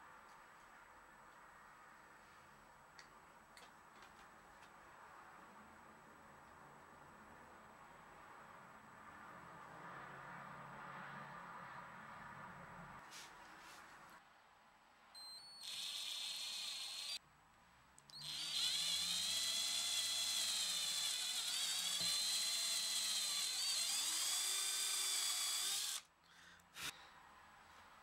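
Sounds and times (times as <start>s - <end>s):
electric drill whining: 15.2s - 17.2s, 18.2s - 26.0s.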